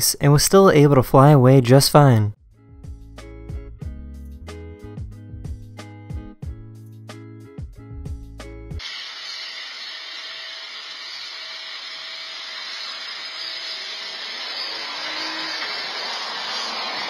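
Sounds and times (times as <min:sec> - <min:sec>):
background music: 0:02.5 - 0:08.8
water spraying from hose nozzle: 0:08.8 - 0:17.0.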